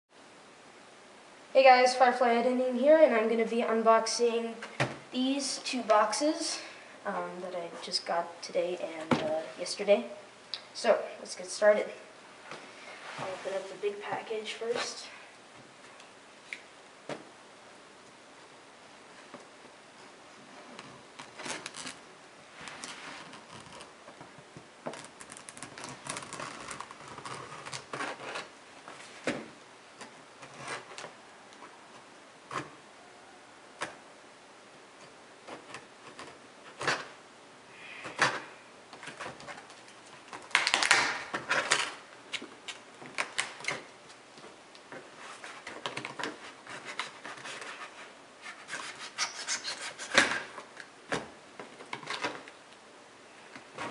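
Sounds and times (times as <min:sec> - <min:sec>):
tape and cardboard rustling: 0:19.1 - 0:32.8, 0:35.0 - 0:37.2, 0:38.0 - 0:52.6
scissors cutting packing tape: 0:40.4 - 0:43.8.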